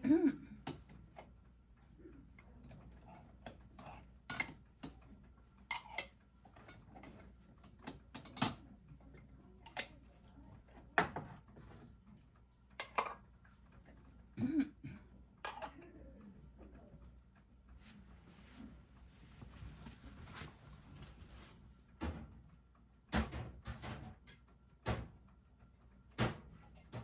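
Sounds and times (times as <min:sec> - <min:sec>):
crockery and cutlery clinking: 0:02.4 - 0:10.2, 0:12.7 - 0:14.1, 0:15.4 - 0:16.0.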